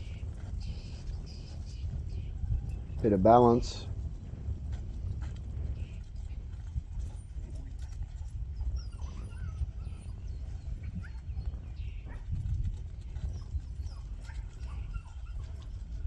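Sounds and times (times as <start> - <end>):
wind rumbling on microphone: 0.0 - 16.0
dog whining: 7.8 - 11.5, 13.2 - 15.8.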